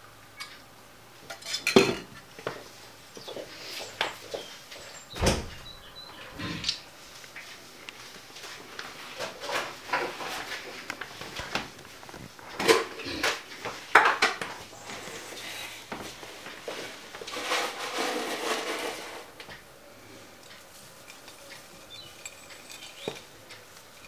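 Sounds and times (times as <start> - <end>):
rustling: 2.2 - 24.0
loud knocks: 5.2 - 5.6
bowls and spoon clattering: 21.0 - 24.0.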